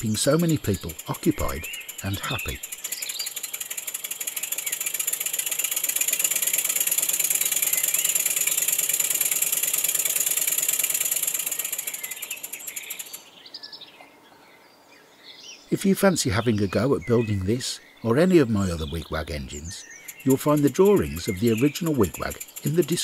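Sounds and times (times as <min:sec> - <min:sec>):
model steam engine chuffing: 0:00.0 - 0:13.2, 0:19.8 - 0:23.0.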